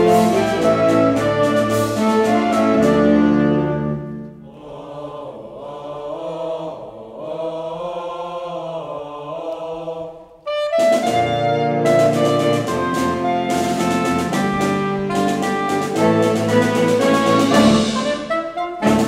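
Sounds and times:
saxophone band with percussion: 0.0s - 4.4s, 10.4s - 19.0s
men singing: 4.5s - 10.2s.

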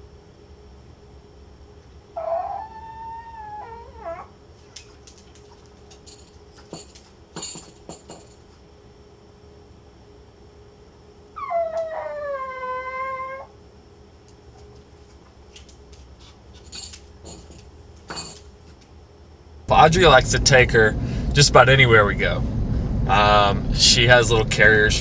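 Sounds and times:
dog howling: 2.2s - 4.4s, 11.4s - 13.6s.

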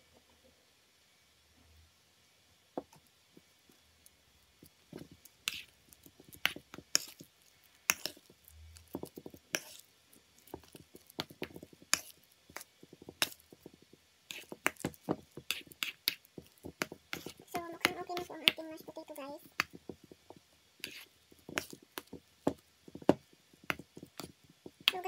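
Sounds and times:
mash squishing: 4.5s - 25.0s
spoon scraping metal bowl: 5.0s - 7.2s, 7.9s - 8.3s, 9.0s - 9.9s, 14.3s - 18.6s, 20.8s - 22.1s.

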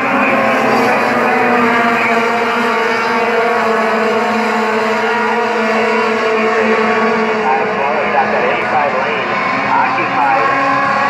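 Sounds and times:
racing truck engines at high revs: 0.0s - 11.0s.

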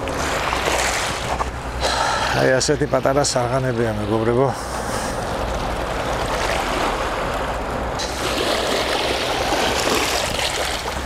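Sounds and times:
sea waves washing ashore: 0.0s - 11.0s.

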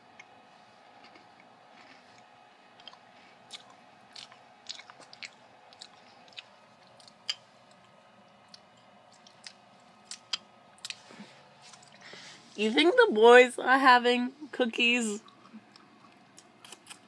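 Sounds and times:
cookie crunching: 1.0s - 12.0s, 15.1s - 17.0s.

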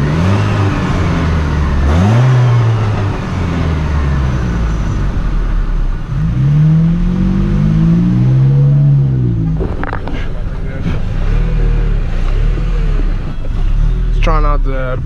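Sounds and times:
pickup truck engine driving slowly: 8.4s - 15.0s.

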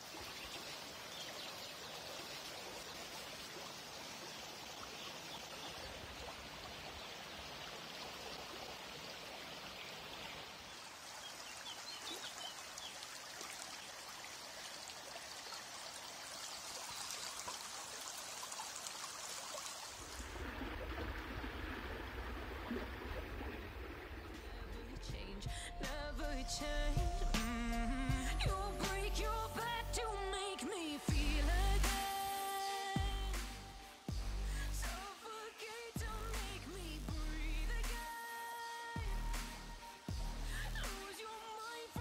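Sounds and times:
water running in a channel: 0.0s - 25.5s
music with heavy bass: 24.8s - 30.4s, 31.1s - 32.3s, 33.0s - 35.1s, 36.0s - 38.1s, 39.0s - 41.1s.

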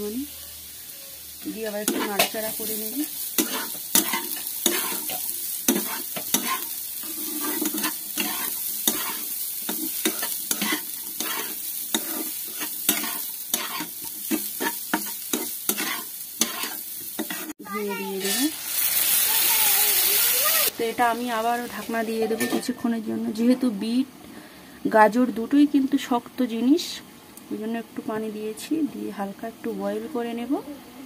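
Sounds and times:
vegetables sizzling in oil: 0.0s - 30.8s
metal spatula scraping pan: 1.8s - 2.8s, 3.4s - 18.5s.

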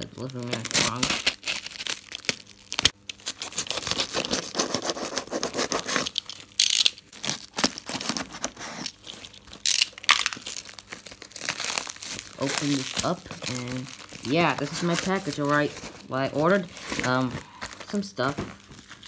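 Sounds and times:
plastic crinkling: 0.0s - 19.0s
knife slitting plastic mailer: 0.4s - 1.8s.

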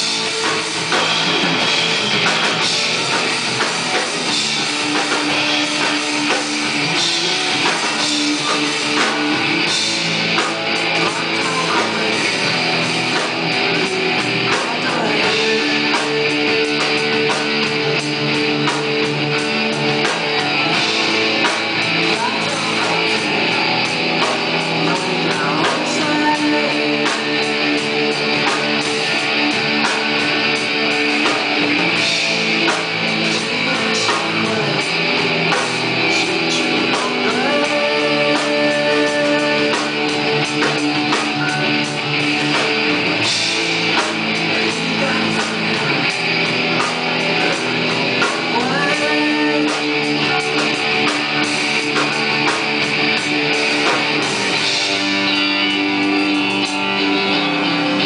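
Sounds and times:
drum kit with cymbal hits: 0.0s - 58.0s
electric guitars: 0.0s - 58.0s.

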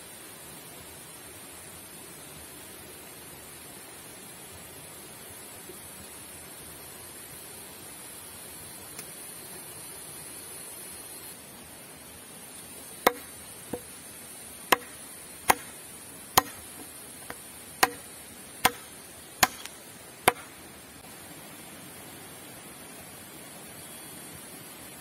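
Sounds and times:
blade chopping into wooden pole: 13.0s - 13.9s, 14.7s - 15.8s, 16.4s - 20.6s.

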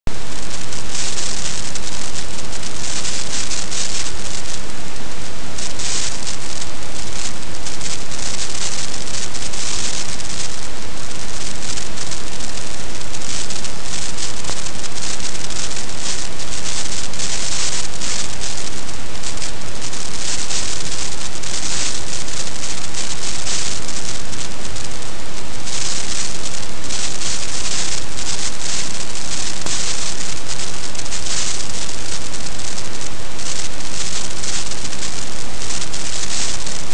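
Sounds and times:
rain hissing on microphone: 0.1s - 36.9s.

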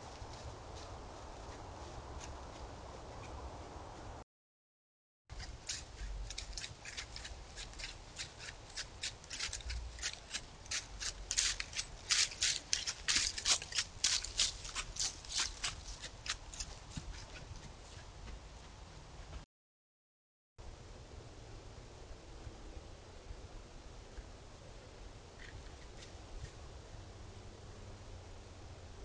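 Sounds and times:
deer crunching: 5.3s - 18.8s.

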